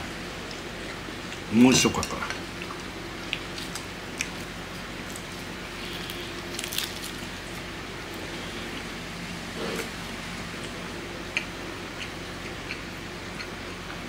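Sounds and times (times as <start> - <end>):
steady low hum: 0.0 - 14.0
person chewing: 5.1 - 7.6, 10.6 - 14.0.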